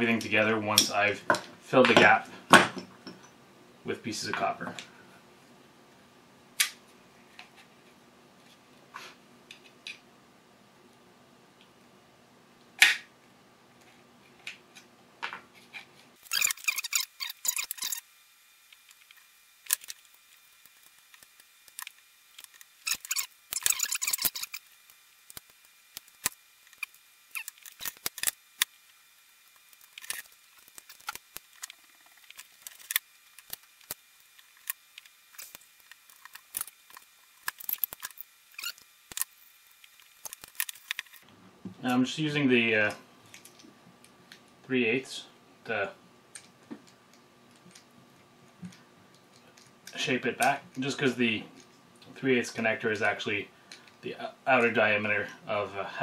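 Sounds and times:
hand tools clicking and clinking: 22.4 - 24.6.

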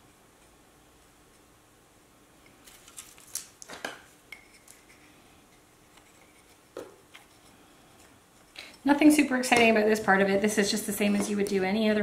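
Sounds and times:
faint clicks and scrapes of hands: 4.3 - 8.8.

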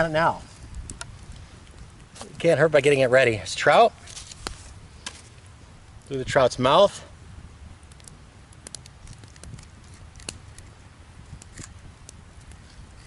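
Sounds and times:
campfire crackling: 0.0 - 13.0
sharp pops: 7.8 - 10.7.

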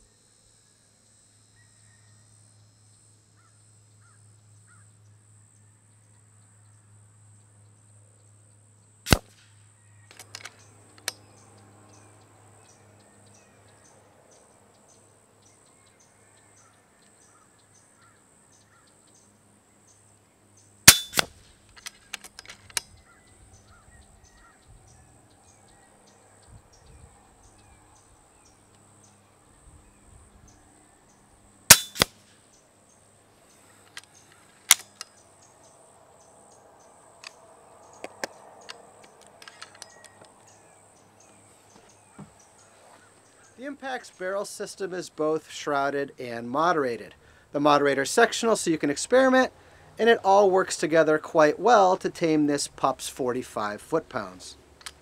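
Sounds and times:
air rifle shots cracking: 9.1 - 9.5, 20.8 - 22.8, 31.7 - 32.4, 34.6 - 35.0.

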